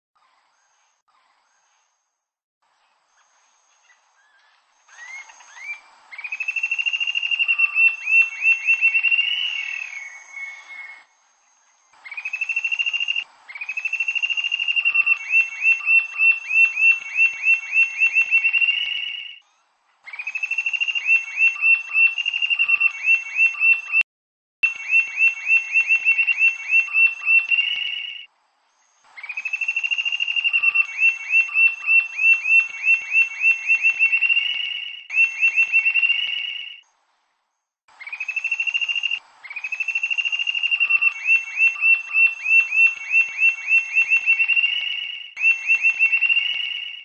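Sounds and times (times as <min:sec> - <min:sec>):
bird singing high notes: 0:29.2 - 0:36.8, 0:38.1 - 0:47.0.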